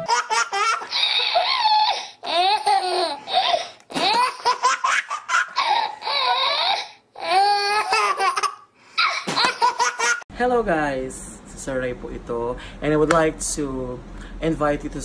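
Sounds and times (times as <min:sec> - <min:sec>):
baby laughing: 0:00.0 - 0:10.3.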